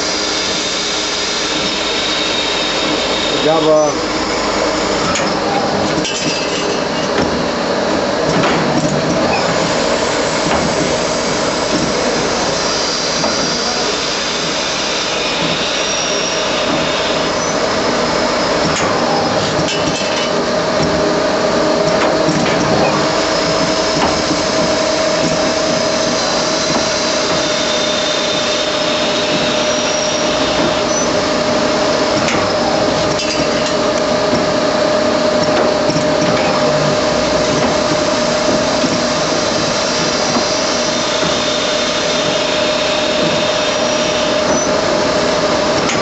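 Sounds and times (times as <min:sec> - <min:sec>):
lathe mechanical whir: 0:00.0 - 0:46.0
short mechanical knocks and clacks: 0:15.3 - 0:21.1, 0:21.8 - 0:31.2, 0:32.1 - 0:34.6, 0:45.7 - 0:46.0.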